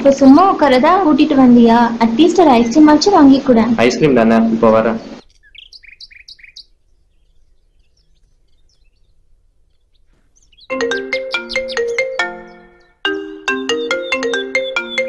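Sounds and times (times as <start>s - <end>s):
bird chirping: 5.0s - 15.0s
phone ringtone melody: 10.7s - 15.0s.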